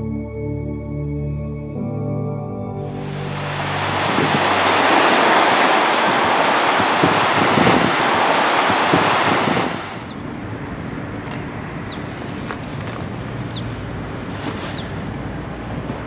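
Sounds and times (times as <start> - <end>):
surf breaking over rocks: 2.9 - 10.2.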